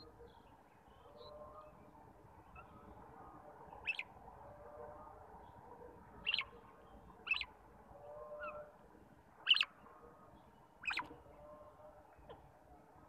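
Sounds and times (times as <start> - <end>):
faint birds chirping: 0.0 - 13.0
parakeets calling shrilly: 7.2 - 7.5, 9.4 - 9.7, 10.8 - 11.0.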